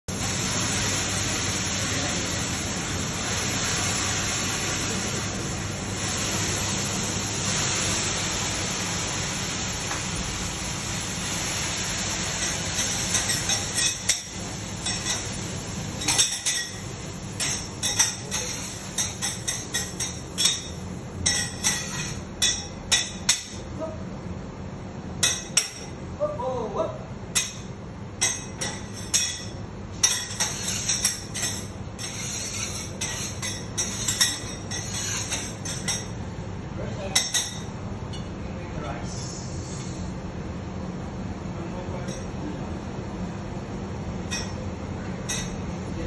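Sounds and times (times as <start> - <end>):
griddle sizzling: 0.1 - 23.7, 27.4 - 38.3
metal clinks on griddle: 16.0 - 16.8, 44.3 - 44.6, 45.2 - 45.6.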